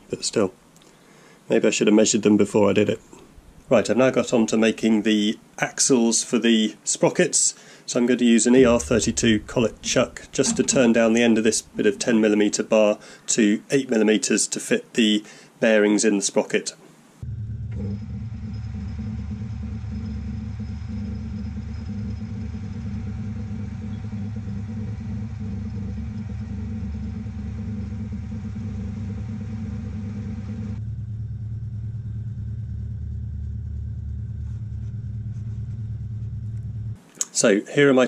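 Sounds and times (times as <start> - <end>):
metal lathe running: 17.5 - 30.8.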